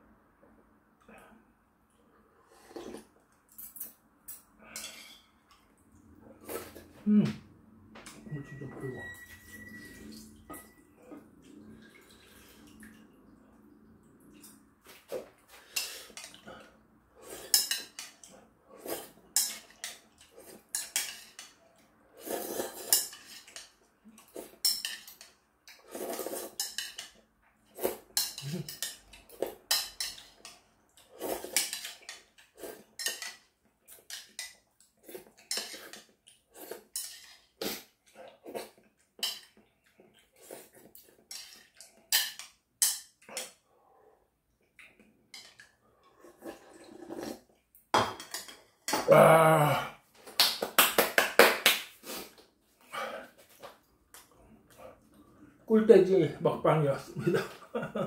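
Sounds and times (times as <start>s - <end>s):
slurping noodles: 2.4s - 3.1s, 18.7s - 19.2s, 22.1s - 23.5s, 25.7s - 26.6s, 31.0s - 31.8s, 40.2s - 41.2s, 46.0s - 47.5s
metal utensils clinking on bowl: 3.5s - 5.6s, 17.4s - 18.3s, 19.3s - 21.6s, 24.4s - 25.4s, 26.5s - 27.2s, 28.2s - 30.6s, 31.4s - 34.6s, 35.4s - 36.1s, 36.9s - 37.4s.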